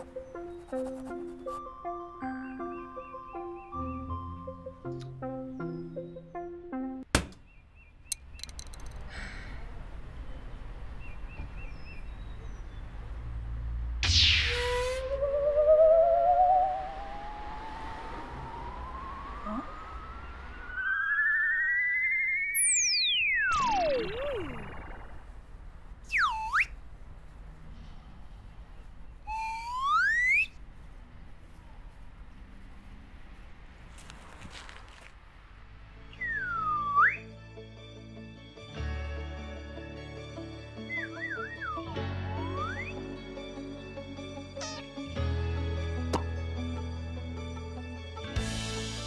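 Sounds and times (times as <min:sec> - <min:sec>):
music: 0:00.0 - 0:07.0, 0:36.1 - 0:49.0
clicks: 0:08.1 - 0:09.1
electronic tone gliding upward: 0:14.0 - 0:25.4, 0:29.3 - 0:30.6
high chirps: 0:18.4 - 0:25.3, 0:29.3 - 0:30.6.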